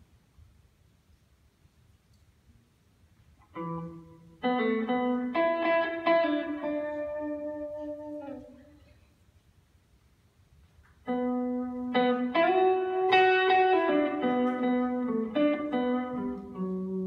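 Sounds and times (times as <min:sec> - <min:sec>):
electric guitar played slowly: 0:03.4 - 0:08.9, 0:11.0 - 0:17.0.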